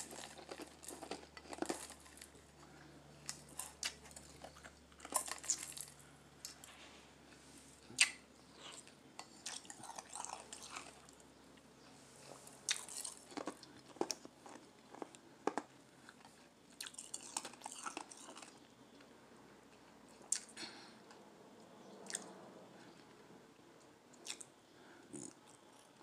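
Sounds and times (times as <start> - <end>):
ice being crunched and chewed: 0.0 - 6.6, 8.0 - 11.2, 12.7 - 18.7.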